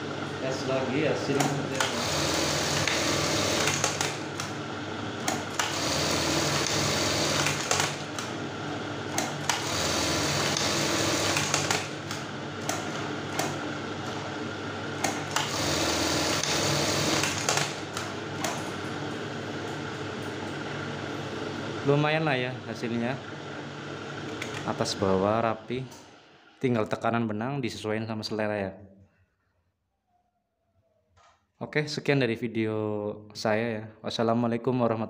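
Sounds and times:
sharp clacks of sewing machine: 1.3s - 4.6s, 5.2s - 8.4s, 9.1s - 13.6s, 15.0s - 18.6s
sewing machine running: 1.3s - 19.0s.

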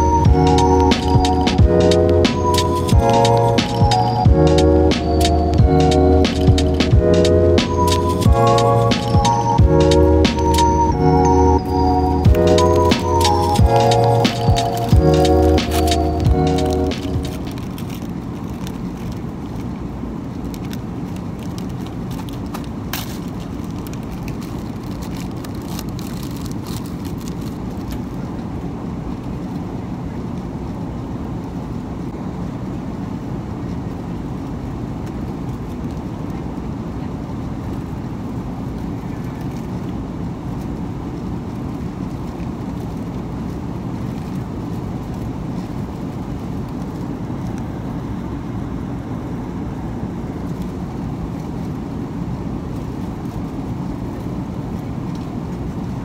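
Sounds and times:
airliner cabin noise: 0.0s - 30.4s, 31.0s - 56.0s
snack wrapper crinkling: 16.6s - 19.2s, 21.4s - 28.0s.

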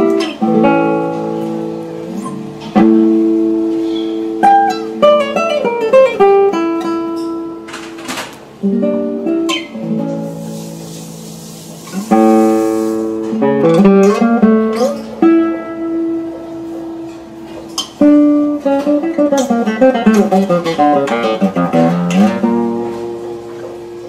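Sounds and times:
classical guitar playing: 0.0s - 24.0s.

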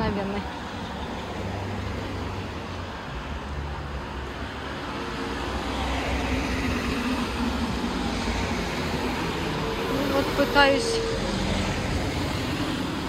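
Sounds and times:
street traffic: 0.0s - 13.0s
vehicle approaching: 4.2s - 13.0s.

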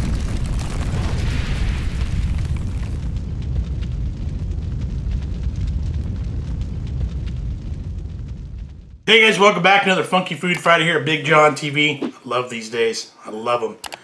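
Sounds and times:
deep constant rumble: 0.0s - 9.1s
scattered crackles: 0.0s - 12.5s.

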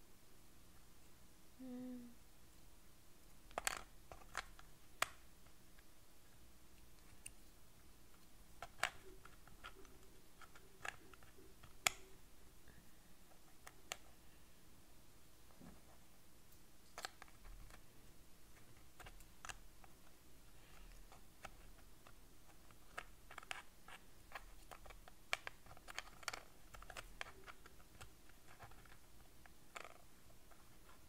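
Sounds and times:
wooden puzzle pieces clicking: 3.5s - 5.2s, 8.2s - 12.2s, 18.6s - 19.9s, 20.7s - 31.0s.

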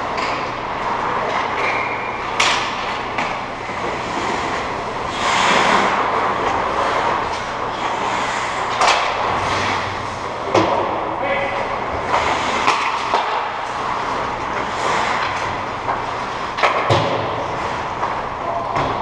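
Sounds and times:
skate blades scraping ice: 0.2s - 10.3s, 11.9s - 18.4s
stick clacking on puck: 1.2s - 4.4s, 5.2s - 9.8s, 12.0s - 13.9s.

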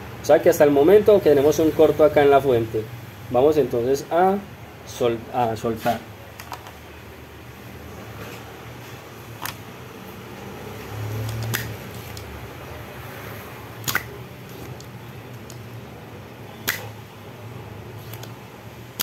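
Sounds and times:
sharp clicks: 16.6s - 16.9s.

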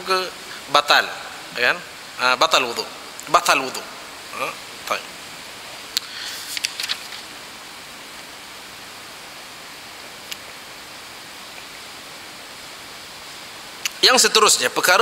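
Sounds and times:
microphone hiss: 0.0s - 15.0s
brief rustle: 6.3s - 7.3s.

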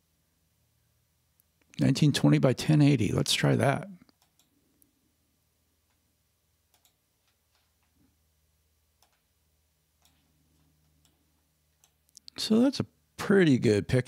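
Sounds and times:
faint clicks: 6.7s - 8.0s.

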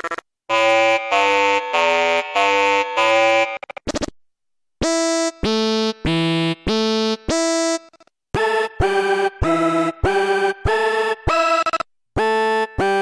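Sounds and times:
pulsing synth lead: 0.5s - 3.6s
synth riff of short notes: 0.5s - 3.6s.

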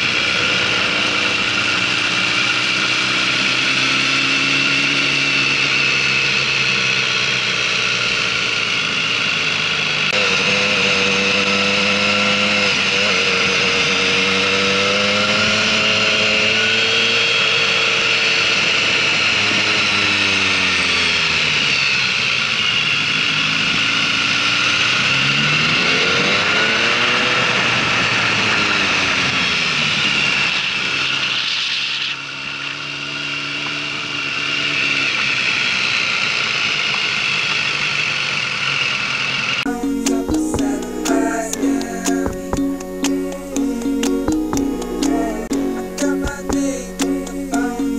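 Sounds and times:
motorcycle engine revving: 0.0s - 30.5s.

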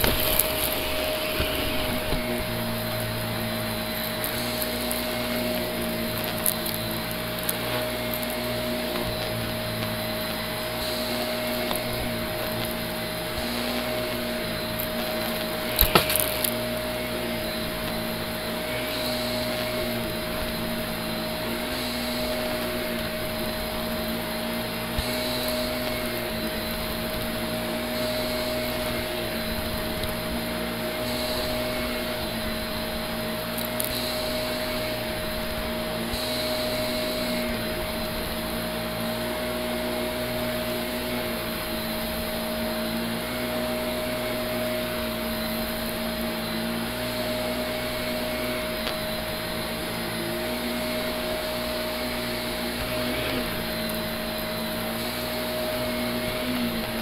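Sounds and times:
sharp clicks: 0.0s - 30.4s
upright vacuum running: 0.0s - 57.0s.

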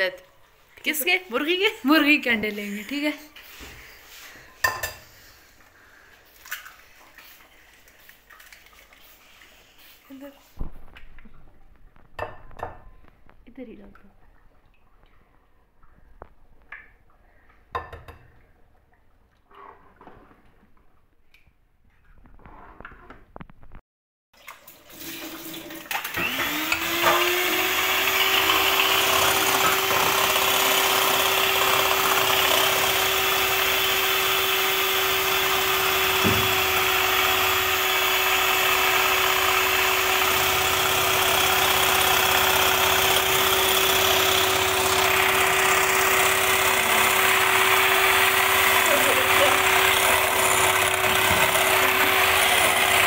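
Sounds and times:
electric hand mixer whirring: 25.9s - 53.0s.

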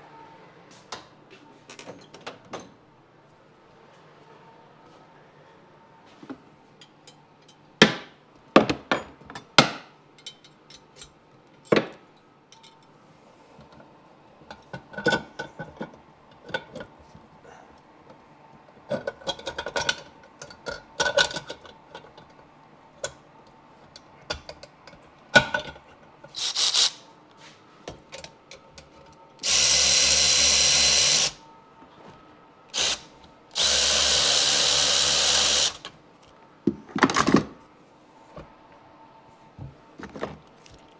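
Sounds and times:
cordless power tool driving bolts: 26.4s - 27.0s, 29.4s - 31.4s, 32.8s - 33.0s, 33.6s - 35.9s.

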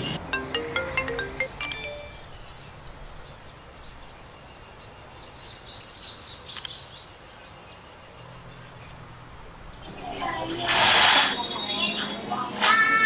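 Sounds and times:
bird chirping: 1.6s - 9.0s
sharp click: 6.5s - 6.9s.

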